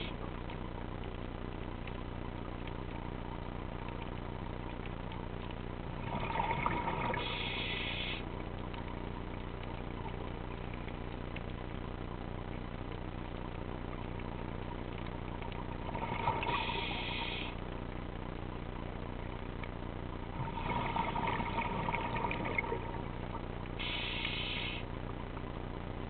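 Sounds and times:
low underwater drone: 0.0 - 26.0
diver exhaling bubbles: 6.0 - 8.2, 15.8 - 17.5, 20.4 - 23.0.

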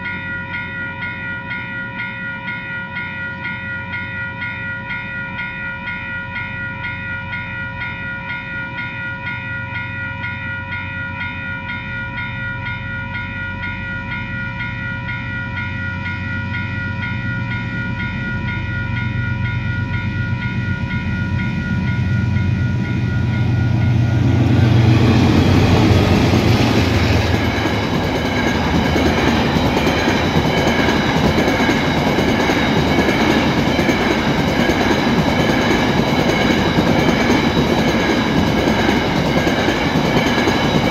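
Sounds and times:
steel wheels roaring on rails: 13.6 - 40.9.

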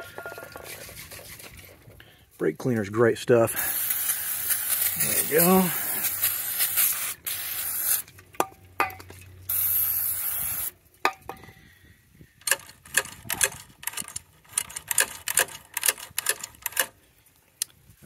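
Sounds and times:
aerosol can spraying: 3.6 - 8.1, 9.5 - 10.7
metallic clicking and rattling: 12.4 - 17.0.

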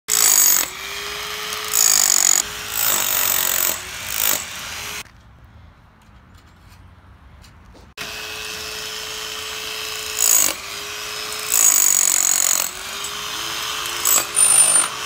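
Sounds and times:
demolition hammer chiselling concrete: 0.1 - 4.5, 8.2 - 15.0.

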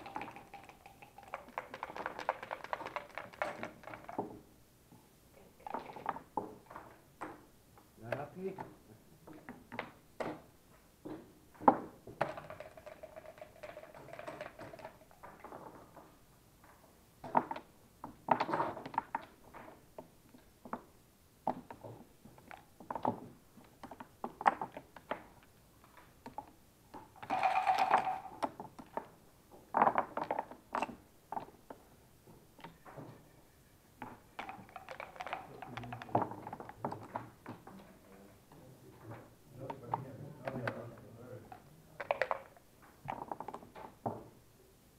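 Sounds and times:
dice rattling and thrown: 0.0 - 4.2, 12.2 - 15.3, 27.2 - 28.5, 34.4 - 37.0, 42.0 - 43.6
game checkers clicking on board: 0.0 - 4.3, 12.2 - 15.6, 27.2 - 29.1, 34.0 - 37.3, 41.5 - 43.7.

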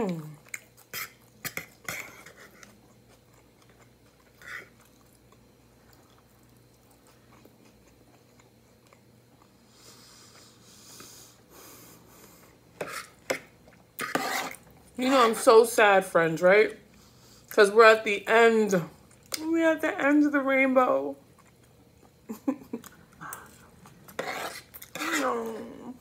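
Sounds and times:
soft chewing: 0.0 - 15.0, 19.0 - 19.4, 21.2 - 26.0
fork scraping a plate: 0.8 - 2.8, 12.8 - 15.5, 24.1 - 25.5.

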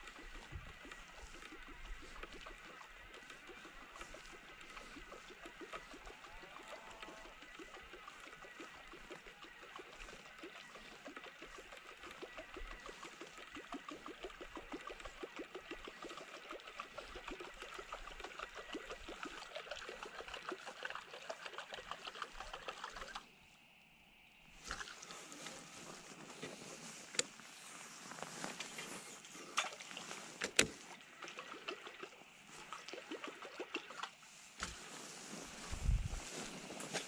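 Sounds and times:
animals rapid clicking chorus: 0.0 - 23.3, 31.0 - 34.8.

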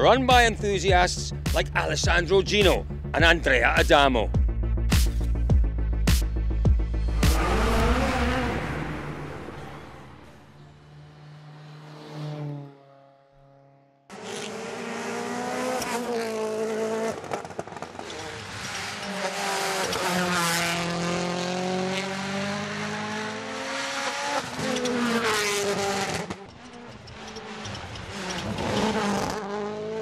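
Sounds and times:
rally car engine racing: 6.8 - 30.0
tyre noise on tarmac: 17.0 - 19.2.

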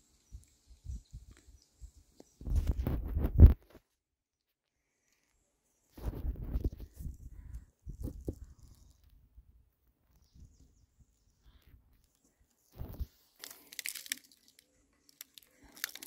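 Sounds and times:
rustling and crackling handling: 12.0 - 16.0.

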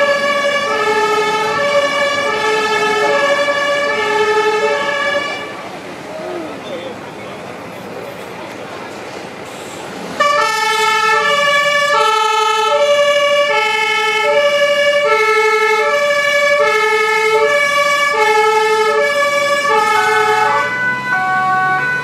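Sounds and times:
fire engine two-tone siren: 0.0 - 5.7, 10.1 - 22.0
truck engine: 0.0 - 22.0.

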